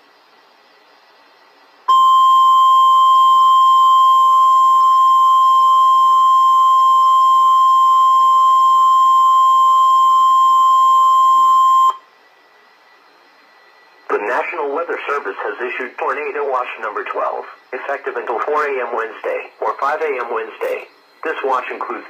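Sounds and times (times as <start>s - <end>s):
high-pitched alarm tone: 1.9s - 12.1s.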